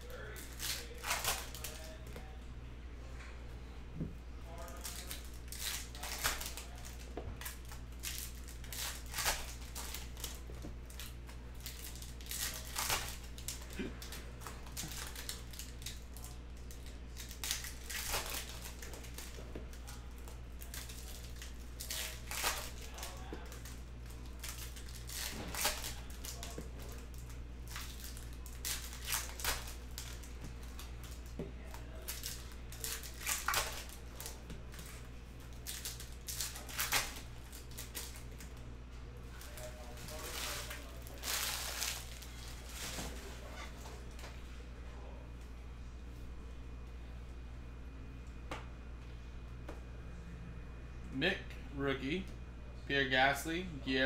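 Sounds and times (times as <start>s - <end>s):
foil wrappers crinkling: 0.0s - 2.0s, 4.5s - 38.6s, 39.2s - 44.2s
steady low hum: 0.0s - 54.0s.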